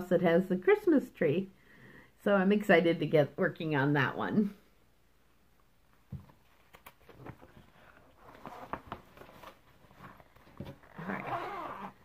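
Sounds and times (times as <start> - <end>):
fabric rustling: 6.2 - 12.0.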